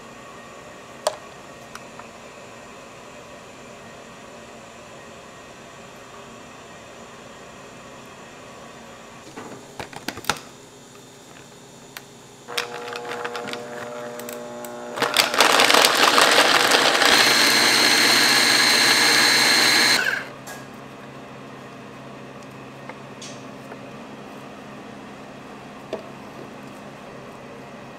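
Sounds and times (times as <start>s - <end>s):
hand blender grinding: 12.5s - 20.3s.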